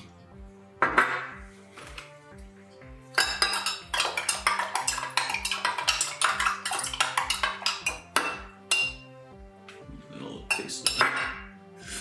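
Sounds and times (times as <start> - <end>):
background music with steady beat: 0.0 - 12.0
spoon clinking in glass jar: 3.2 - 9.1, 10.5 - 11.4.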